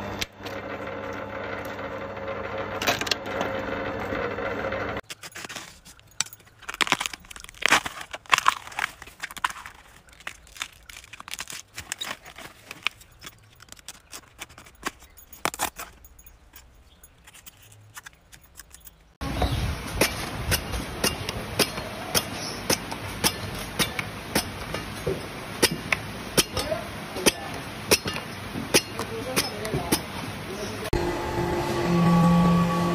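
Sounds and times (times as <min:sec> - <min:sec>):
bamboo husk tearing and crackling: 0:05.0 - 0:16.0
steady background noise: 0:05.8 - 0:32.9
machete chopping on wooden board: 0:20.0 - 0:30.1.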